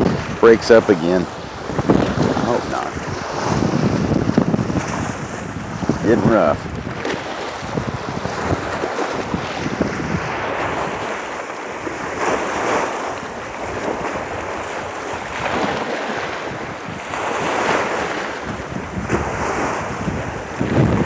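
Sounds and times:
water splashing against rocks: 0.0s - 21.0s
wind buffeting microphone: 0.0s - 21.0s.

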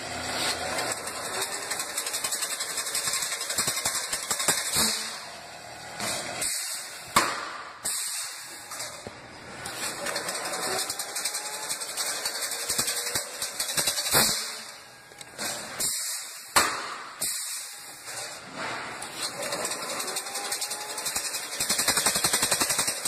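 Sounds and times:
machine hiss: 7.8s - 8.6s, 15.8s - 16.5s, 17.1s - 17.9s.

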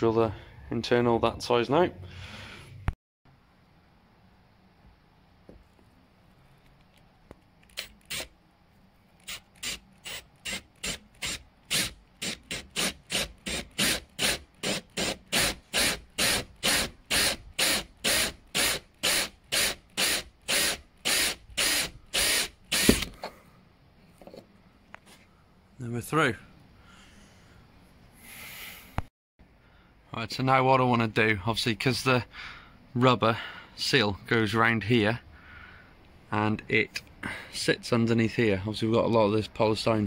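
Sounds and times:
drill hole saw grinding: 7.7s - 8.3s, 9.2s - 23.1s.

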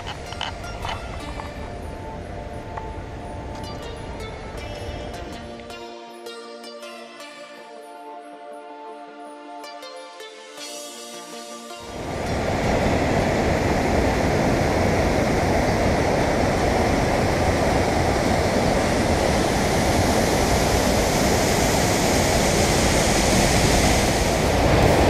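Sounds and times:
waterfall roaring: 0.0s - 1.6s, 11.9s - 25.0s.

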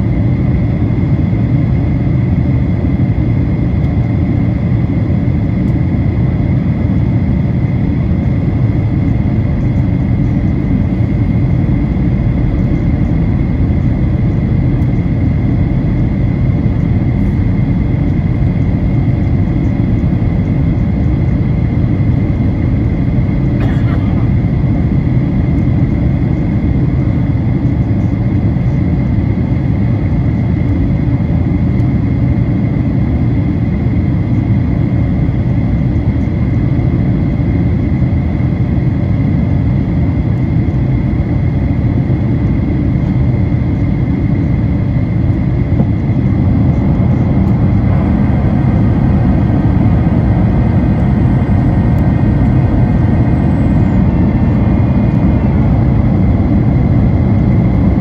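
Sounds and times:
airplane cabin engine drone: 0.0s - 58.0s.

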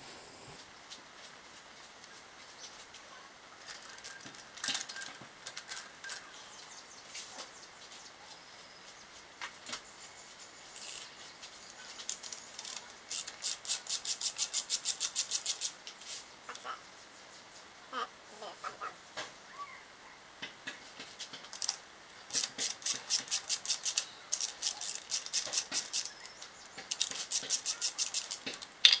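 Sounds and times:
metallic clicks of hand tools: 12.0s - 15.8s, 21.5s - 29.0s.

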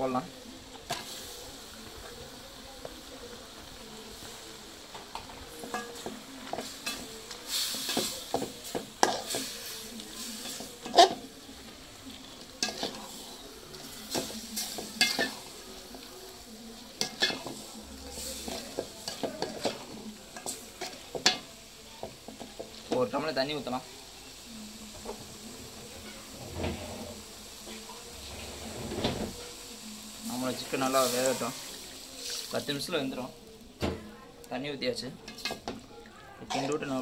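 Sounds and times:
steady sizzle: 0.0s - 37.0s
ladle scraping a metal pot: 7.6s - 11.3s, 36.4s - 37.0s.

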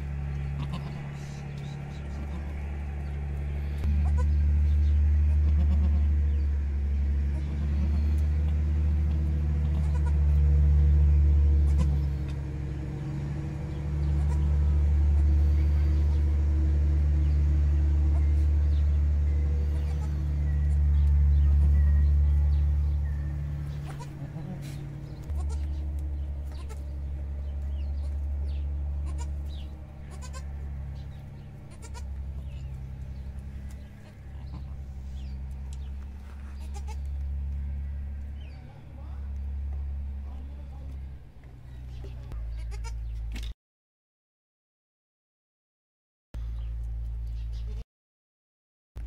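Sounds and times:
low engine-like hum: 0.0s - 43.5s, 46.4s - 47.8s
faint goat bleats: 0.5s - 2.8s, 3.8s - 4.4s, 5.3s - 6.2s, 7.3s - 8.2s, 9.6s - 10.4s, 11.6s - 12.0s, 14.0s - 15.9s, 19.6s - 20.3s, 21.4s - 21.9s, 23.8s - 25.8s, 26.5s - 26.8s, 29.0s - 30.5s, 31.7s - 32.6s, 33.9s - 34.8s, 36.2s - 37.2s, 42.0s - 43.1s.

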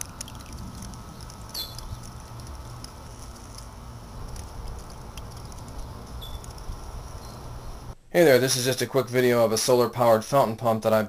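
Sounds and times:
droplets pattering into water: 0.0s - 3.4s
steady low rumble: 0.0s - 9.1s.

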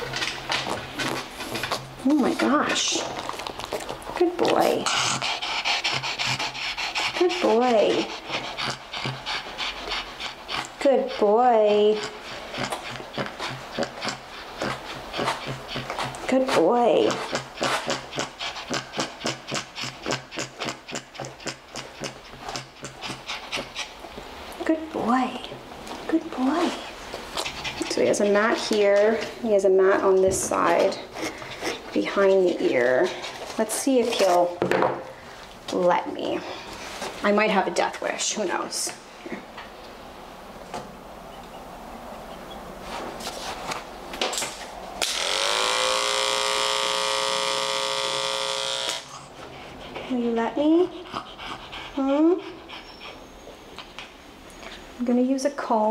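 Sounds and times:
dog panting: 0.0s - 35.2s, 49.0s - 54.9s
electric clipper motor humming: 45.0s - 49.2s.

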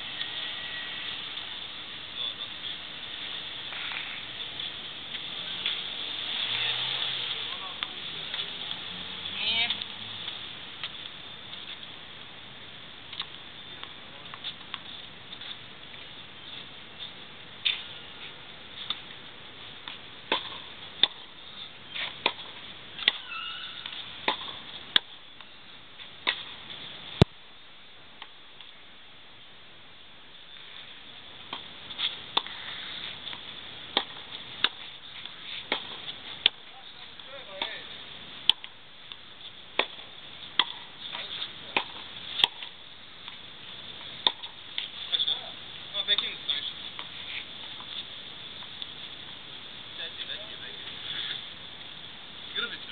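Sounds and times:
tennis balls hit with racket: 19.8s - 25.5s, 26.2s - 26.6s, 31.5s - 45.4s.

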